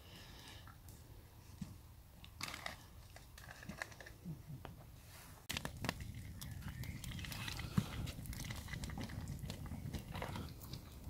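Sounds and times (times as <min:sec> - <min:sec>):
burning wood crackling: 0:00.0 - 0:11.0
faint rustling and crinkling: 0:02.4 - 0:11.0.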